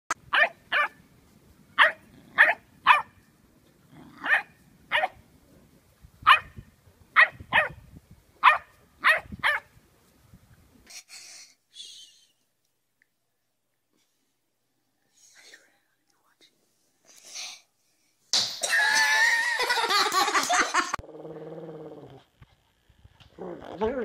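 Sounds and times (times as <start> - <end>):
dog barking: 0.3 - 1.0, 1.8 - 3.2, 4.2 - 5.2, 6.3 - 6.5, 7.2 - 7.8, 8.4 - 9.7.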